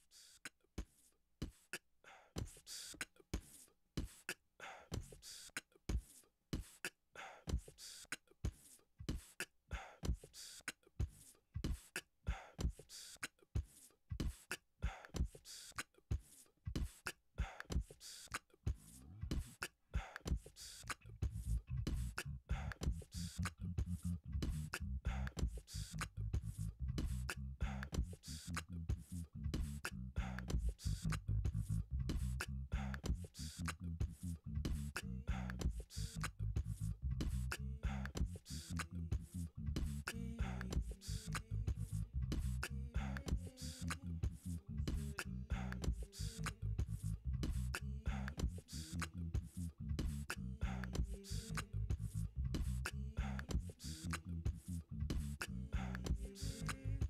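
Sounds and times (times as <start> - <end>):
beatbox drum beat: 0.0 - 57.0
low bass layer: 21.0 - 57.0.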